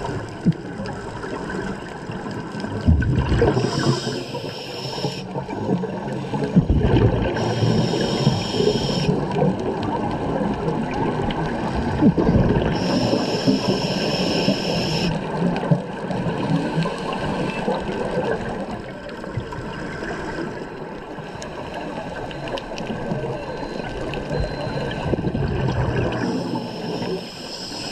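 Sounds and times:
bubbles bubbling and gurgling: 0.0 - 27.2
regulator inhalation hiss: 3.6 - 5.3, 7.4 - 9.1, 12.8 - 15.2, 26.4 - 27.9.

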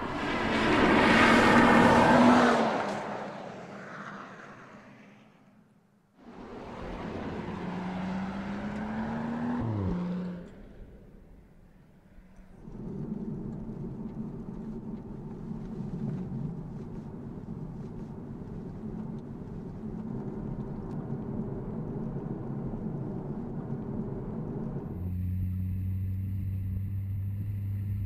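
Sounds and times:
road noise: 0.0 - 28.0
car engine running from inside cabin: 6.3 - 11.8, 12.4 - 28.0.

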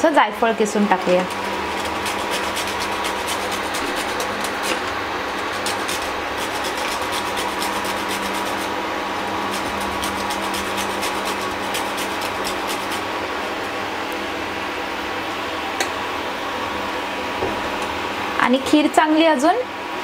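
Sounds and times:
nutmeg scraping on metal grater: 0.8 - 13.1.

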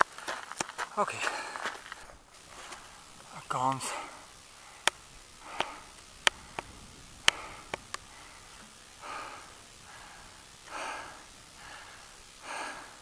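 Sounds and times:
person breathing: 1.2 - 3.2, 3.8 - 13.0
sharp clicks: 4.8 - 8.7.

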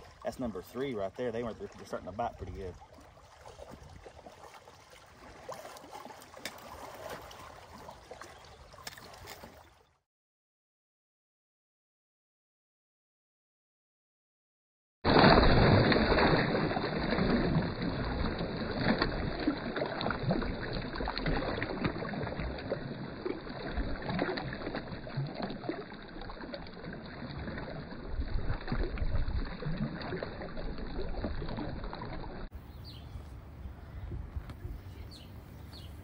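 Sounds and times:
water splashing and churning: 0.0 - 10.0, 15.1 - 32.6.

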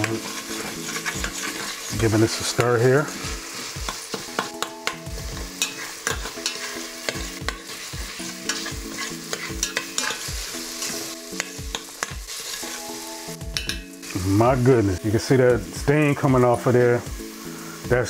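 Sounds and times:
metal spoon scraping a pot: 0.0 - 1.9, 5.6 - 12.9
chicken sizzling in a pot: 0.0 - 18.0.

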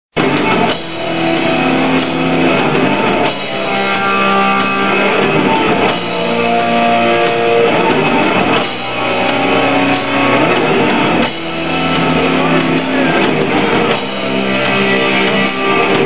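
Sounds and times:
electric guitar long notes: 0.1 - 16.0
metal band playing: 0.1 - 16.0.

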